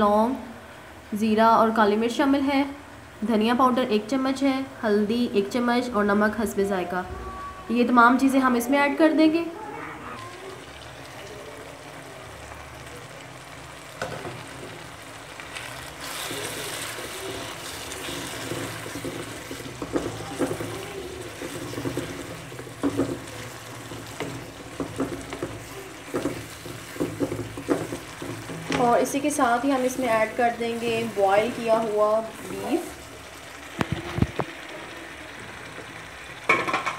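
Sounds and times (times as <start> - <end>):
food sizzling in hot oil: 8.1 - 36.9
spatula scraping and tapping pan: 15.5 - 32.9.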